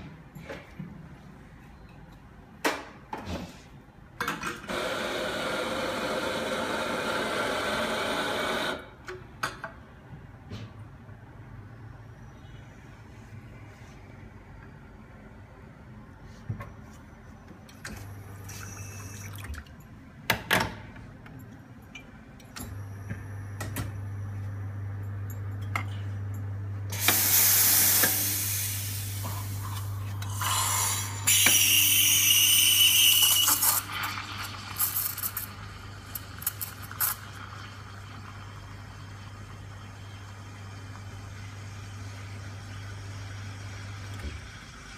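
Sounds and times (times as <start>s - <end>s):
milk steaming hiss: 27.0s - 32.5s.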